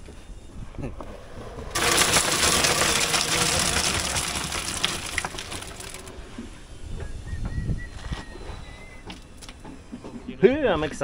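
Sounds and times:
wet concrete pouring into form: 1.7s - 6.1s.

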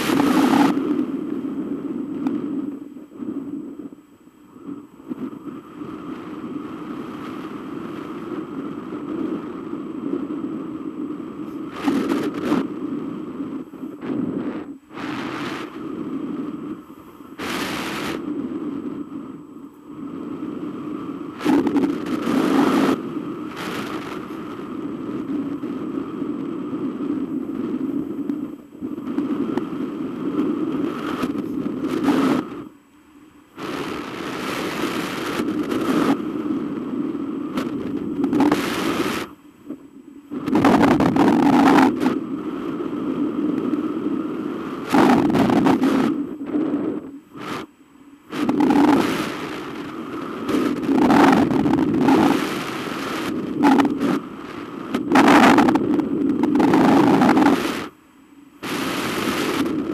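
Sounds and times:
wind rushing over microphone: 0.0s - 59.9s.

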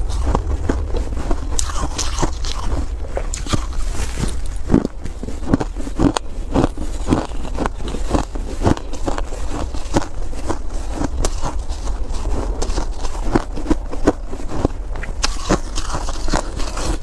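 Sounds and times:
foam ice crunching while chewed: 0.0s - 17.0s.

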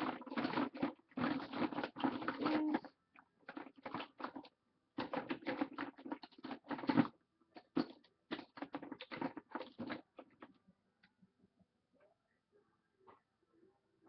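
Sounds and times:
plastic containers clattering: 0.0s - 10.6s.

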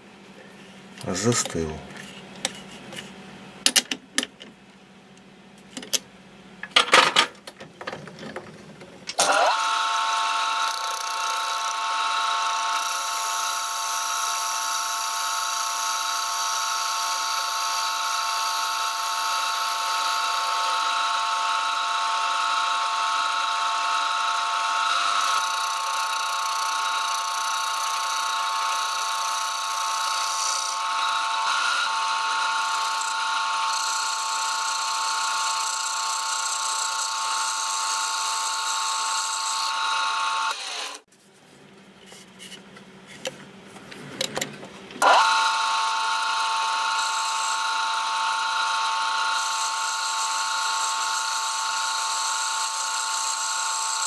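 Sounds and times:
lathe motor whining: 9.2s - 41.0s, 45.0s - 54.0s.

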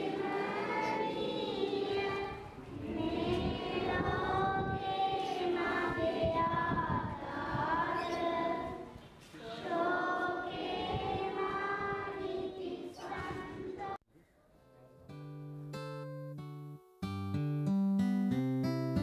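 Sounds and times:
crowd singing together: 0.0s - 14.0s.

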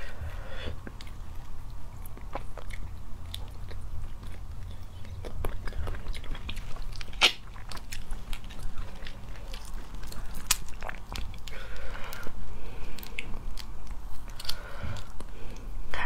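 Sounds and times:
chewing: 0.7s - 15.7s
crayfish shells cracking: 5.3s - 15.3s.

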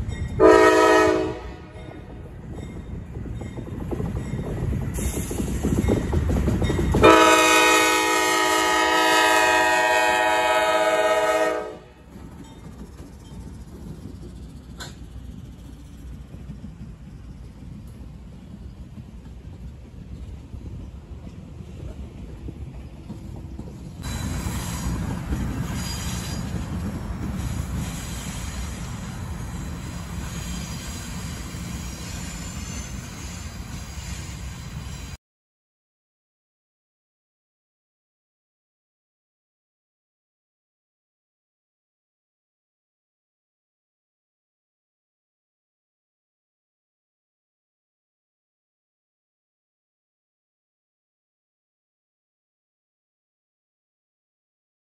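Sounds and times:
train engine and wheels rumbling: 0.0s - 35.2s
locomotive air horn: 0.4s - 2.0s, 7.0s - 12.0s
faint high wheel squeal: 24.0s - 35.2s.

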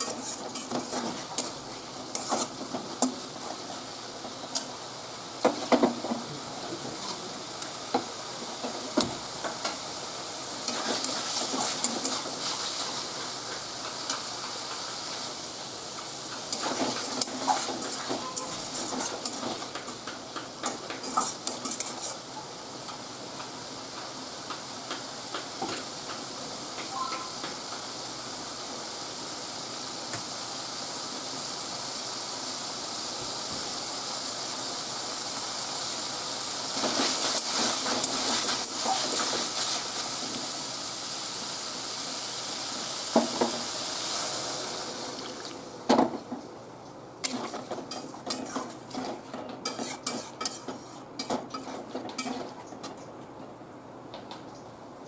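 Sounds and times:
spatula scraping and knocking pan: 0.0s - 3.2s, 16.0s - 22.2s, 47.2s - 52.6s
potatoes sizzling in a pan: 0.0s - 6.7s, 7.3s - 45.8s, 47.2s - 49.0s, 49.6s - 52.4s
water poured into hot pan: 10.1s - 13.5s, 35.2s - 45.7s.

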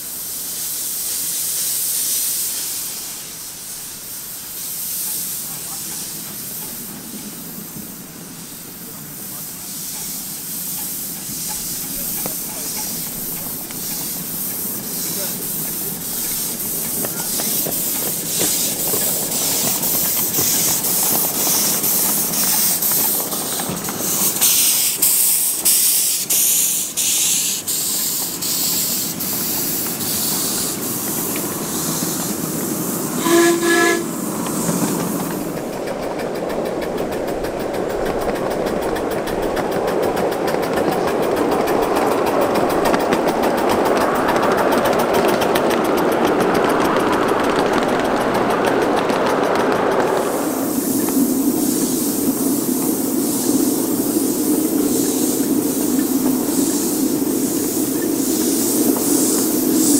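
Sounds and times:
steam locomotive hissing and chuffing: 0.0s - 59.9s
wheels rumbling on track: 0.0s - 59.9s
wheels clicking on rails: 0.4s - 59.9s
steam whistle toot: 33.2s - 34.2s.

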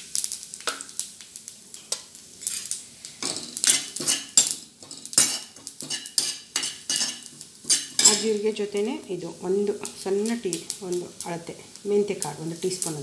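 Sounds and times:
seeds roasting in oil: 0.0s - 13.0s
metal spoon scraping a pan: 1.8s - 8.4s.

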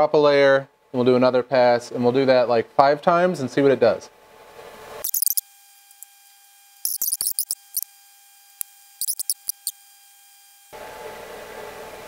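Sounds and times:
stepper motors chirping: 5.0s - 6.1s, 6.8s - 7.9s, 8.6s - 10.7s
faint steady whine: 5.0s - 10.8s.

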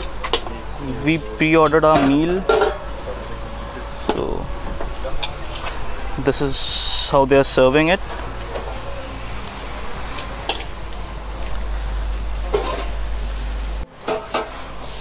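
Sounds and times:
serving dishes clinking: 1.6s - 3.2s, 12.4s - 13.0s.

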